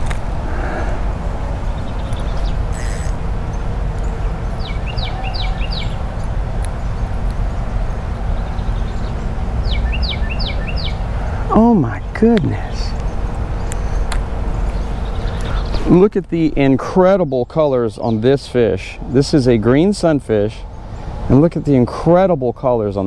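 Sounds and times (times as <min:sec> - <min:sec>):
low outdoor rumble: 0:00.0 - 0:23.0
songbird whistling: 0:01.9 - 0:03.2, 0:04.6 - 0:06.0, 0:09.6 - 0:11.0.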